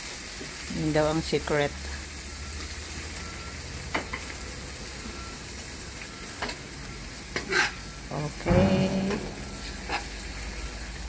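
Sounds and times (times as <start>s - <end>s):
food sizzling in a wok: 0.0s - 11.0s.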